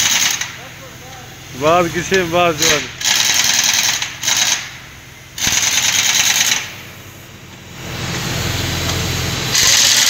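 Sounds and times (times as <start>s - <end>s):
pneumatic impact wrench hammering: 0.0s - 7.6s, 8.8s - 10.0s.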